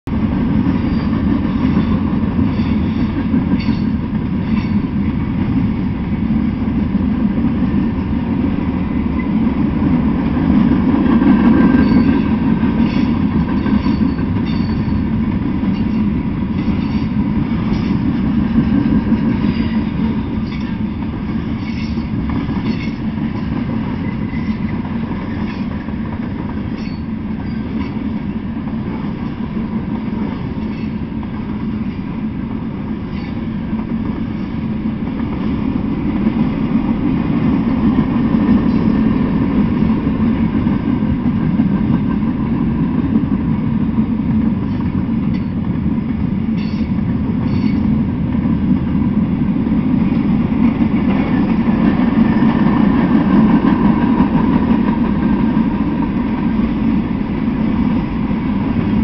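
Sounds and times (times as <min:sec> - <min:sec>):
train wheels rumbling on rail: 0:00.0 - 0:59.0
wheels clicking over rail joints: 0:10.2 - 0:32.1.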